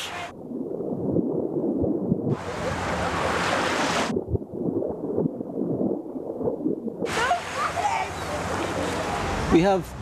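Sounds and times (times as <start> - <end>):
sea water sloshing: 0.0 - 9.5
hissing rush of water: 2.3 - 4.1, 7.0 - 9.8.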